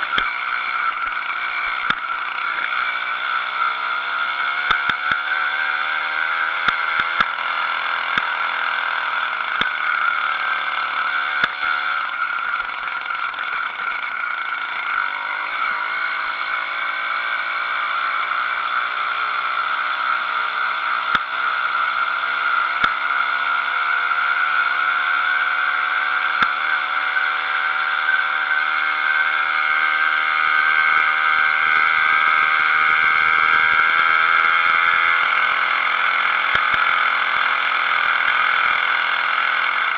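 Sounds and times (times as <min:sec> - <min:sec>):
two-stroke engine buzzing: 0:00.0 - 0:39.9
sharp clicks: 0:06.6 - 0:07.4.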